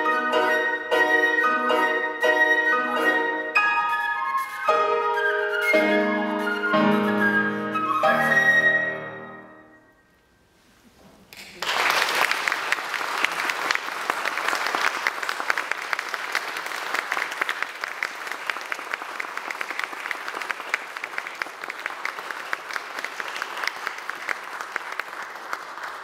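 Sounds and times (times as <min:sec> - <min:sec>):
audience applauding: 0:11.3 - 0:26.0.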